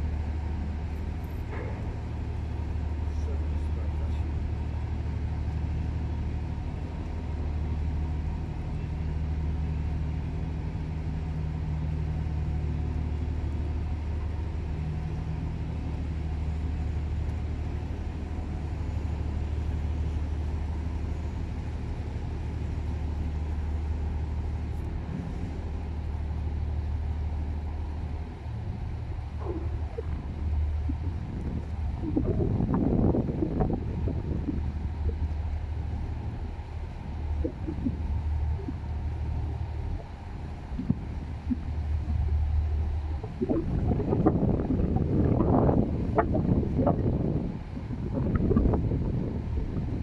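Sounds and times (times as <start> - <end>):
diesel engine droning: 0.0 - 50.0.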